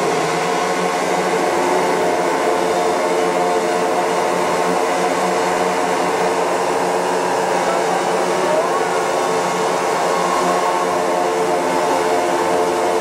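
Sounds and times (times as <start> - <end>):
model aircraft engines droning: 0.0 - 13.0.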